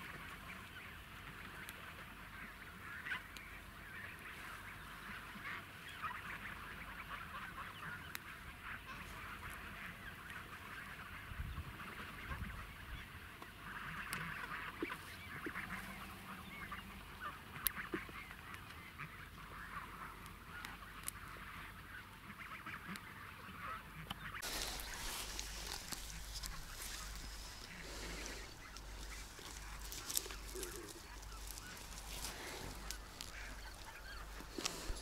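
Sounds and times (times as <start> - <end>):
distant chorus of animal calls: 22.4 - 35.0.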